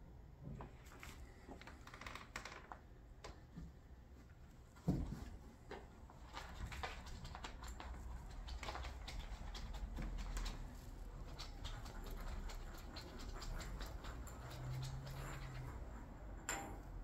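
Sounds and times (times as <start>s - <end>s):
cat scratching and tapping on floor: 4.9s - 16.7s.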